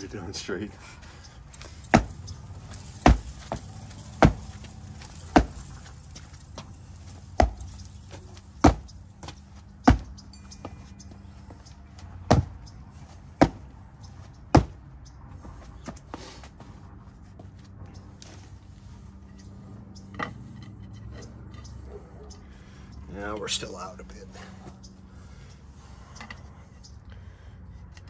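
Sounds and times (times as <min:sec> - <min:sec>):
heavy thuds of jumping: 0:01.6 - 0:10.9, 0:12.2 - 0:13.8, 0:14.5 - 0:14.8.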